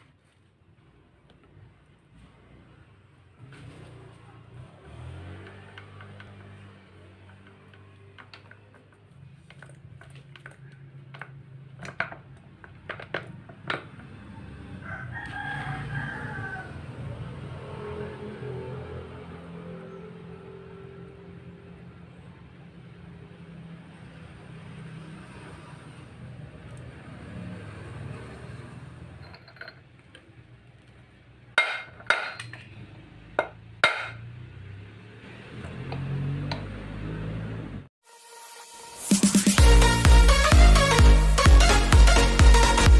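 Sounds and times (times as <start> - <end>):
rooster crowing: 14.5 - 17.7.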